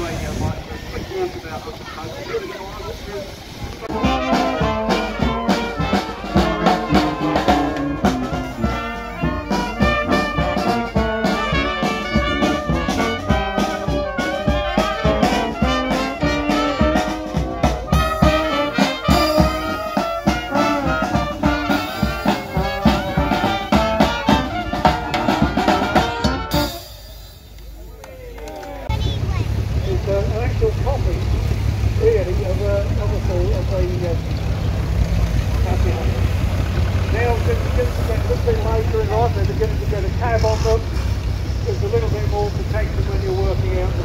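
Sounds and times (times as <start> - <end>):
trumpets and trombones melody: 3.8 - 27.8
snare and bass drum beat: 3.9 - 27.6.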